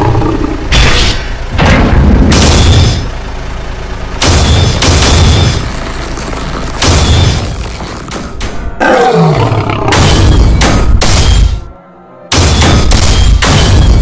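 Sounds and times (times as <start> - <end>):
heavy booming hits: 0.0 - 3.1
monster roars and screeches: 8.8 - 10.0.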